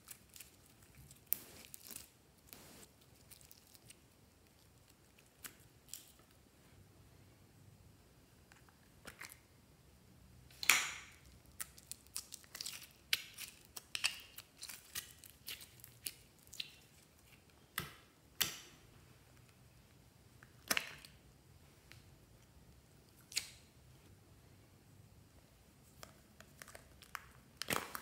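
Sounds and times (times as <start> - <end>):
sticky slime popping and crackling: 10.5 - 17.0, 26.0 - 28.0.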